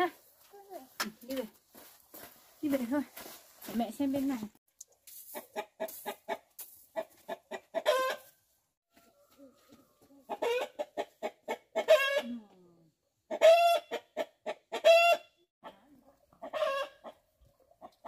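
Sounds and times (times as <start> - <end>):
hen cackling: 9.5 - 12.4, 13.3 - 15.8, 16.4 - 17.2.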